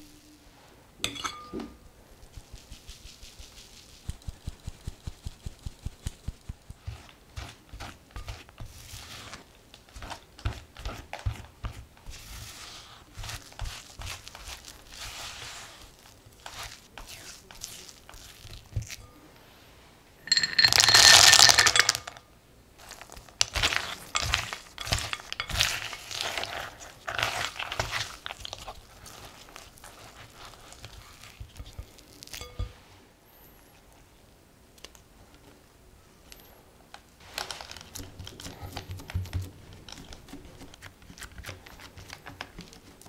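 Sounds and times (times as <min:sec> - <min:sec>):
almonds clattering into glass bowl: 0:20.3 - 0:22.2, 0:22.9 - 0:26.5
spatula scraping glass bowl: 0:23.5 - 0:32.8.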